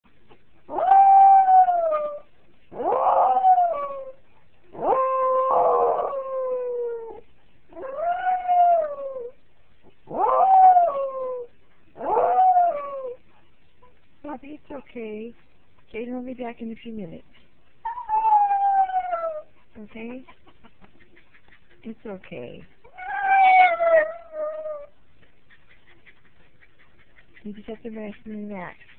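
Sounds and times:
dog howling: 0:00.7 - 0:04.2, 0:04.8 - 0:07.2, 0:07.8 - 0:09.4, 0:10.1 - 0:13.2, 0:17.8 - 0:19.5, 0:22.9 - 0:24.9.

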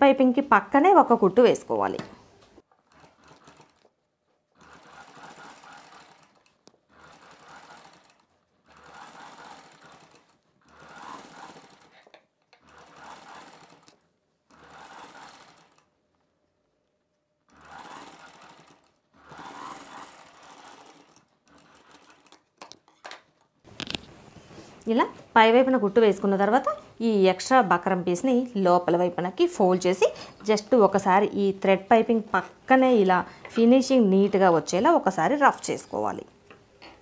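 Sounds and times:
sewing machine stitching: 0:01.9 - 0:16.0, 0:17.5 - 0:22.8.

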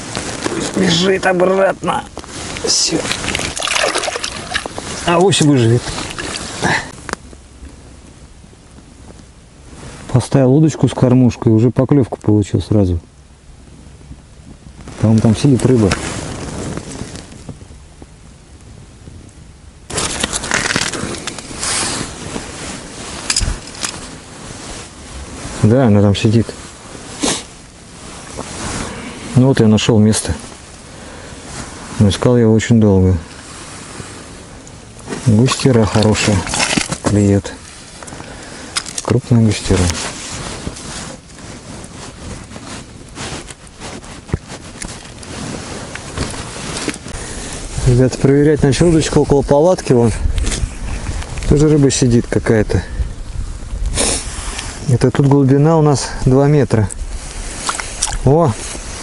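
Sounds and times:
jacket rustling and crackling: 0:00.0 - 0:10.2, 0:14.4 - 0:17.8, 0:19.9 - 0:52.6, 0:53.2 - 0:59.0
low background noise: 0:00.0 - 0:59.0
fish handling rustling: 0:02.2 - 0:07.1, 0:19.9 - 0:25.5, 0:35.6 - 0:47.8.

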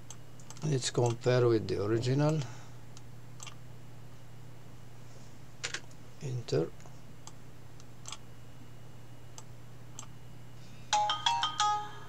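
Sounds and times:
steady low hum: 0:00.0 - 0:12.0
computer mouse clicks: 0:00.1 - 0:01.2, 0:02.2 - 0:03.6, 0:07.2 - 0:08.2.

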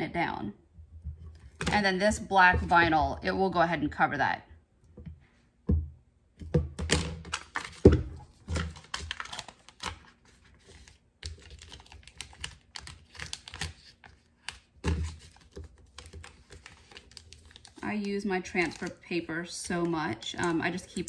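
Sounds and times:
paper crinkling and peeling: 0:08.6 - 0:17.8, 0:18.5 - 0:19.0.

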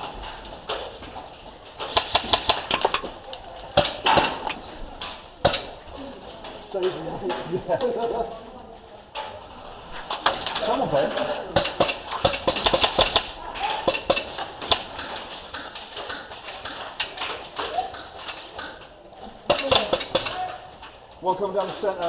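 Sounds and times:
airsoft gun bursts: 0:01.8 - 0:03.2, 0:11.5 - 0:15.8.

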